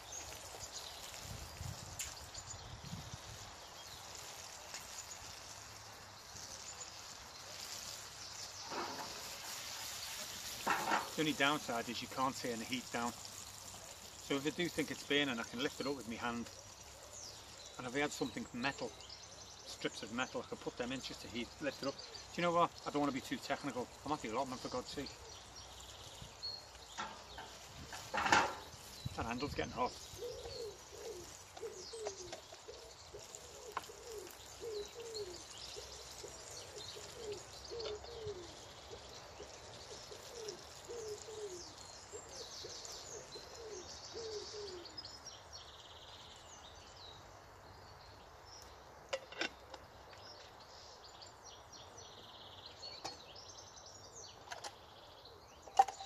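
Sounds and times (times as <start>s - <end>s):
small birds chirping: 0.0s - 56.0s
pigeon cooing: 30.1s - 45.0s.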